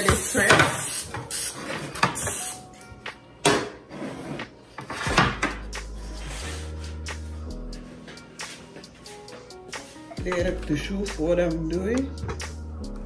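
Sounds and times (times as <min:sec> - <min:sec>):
background music low notes: 0:00.0 - 0:13.0
aerosol spray hissing: 0:00.1 - 0:01.6, 0:02.2 - 0:02.6.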